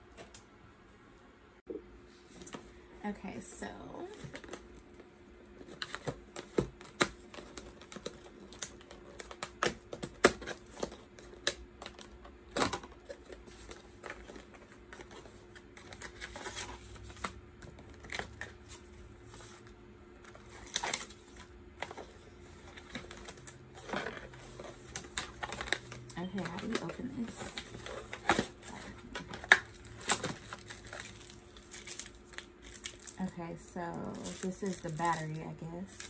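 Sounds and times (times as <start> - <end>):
packaging rustling: 4.2 - 36.0.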